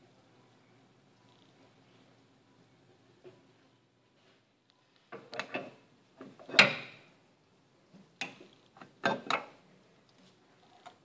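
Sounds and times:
tools knocking and clicking: 0:05.2 - 0:07.0, 0:08.2 - 0:09.6.

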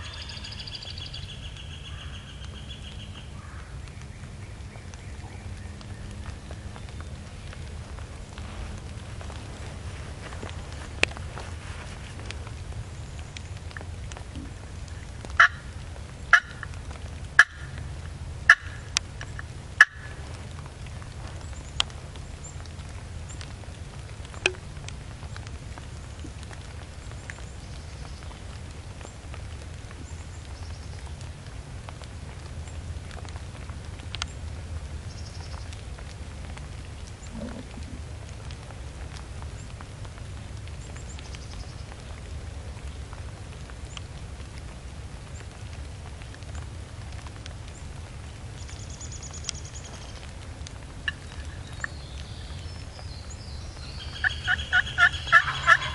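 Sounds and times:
steady low rumble: 0:00.0 - 0:55.9
turkey calling: 0:15.4 - 0:15.7, 0:16.3 - 0:16.7, 0:17.4 - 0:17.7, 0:18.5 - 0:18.9, 0:19.8 - 0:20.2, 0:51.0 - 0:52.0, 0:53.9 - 0:55.9.

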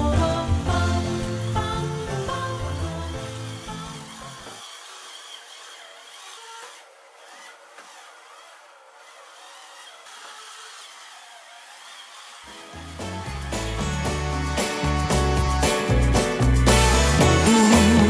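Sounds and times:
small motor whine: 0:00.6 - 0:18.0
brush scrubbing bathtub: 0:02.5 - 0:13.8.

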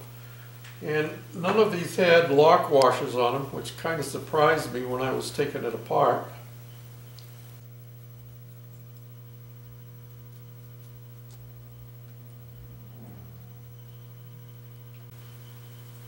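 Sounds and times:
electrical mains hum: 0:00.0 - 0:16.0.

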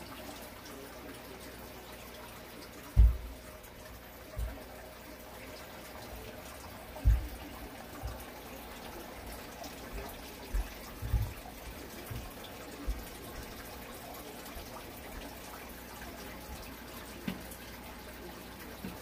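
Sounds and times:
aquarium water bubbling: 0:00.0 - 0:19.0
dull low thumps: 0:03.0 - 0:03.4.

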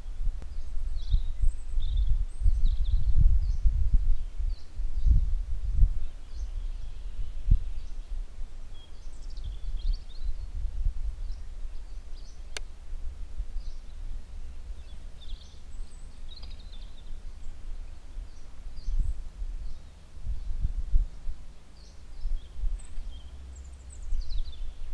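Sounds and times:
small birds chirping: 0:00.0 - 0:24.9
wind rumble on microphone: 0:00.0 - 0:24.9
sharp click: 0:12.5 - 0:12.7.

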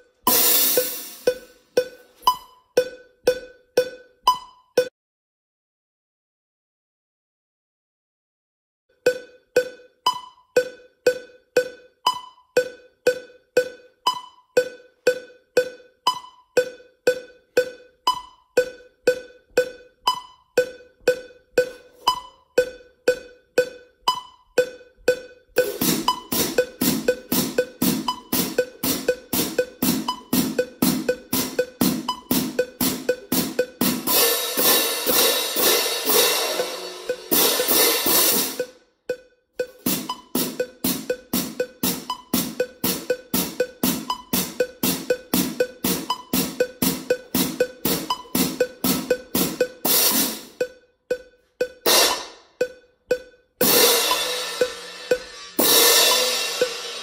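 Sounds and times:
metronome clicking: 0:00.0 - 0:04.9, 0:08.9 - 0:57.0
crash cymbals ringing: 0:34.0 - 0:38.7, 0:53.6 - 0:57.0.

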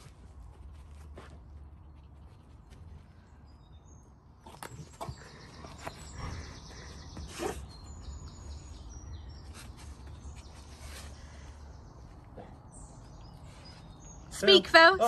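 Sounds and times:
birds chirping and singing: 0:03.3 - 0:15.0.

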